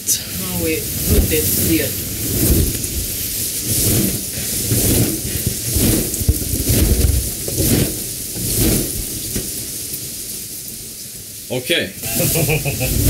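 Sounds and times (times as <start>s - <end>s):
balloons rubbing and bumping: 0.6s - 9.5s.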